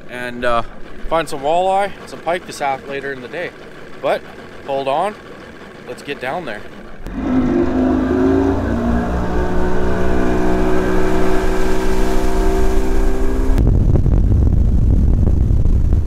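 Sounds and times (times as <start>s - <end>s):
outboard motor revving: 0.0s - 13.7s
low rushing rumble: 6.8s - 16.0s.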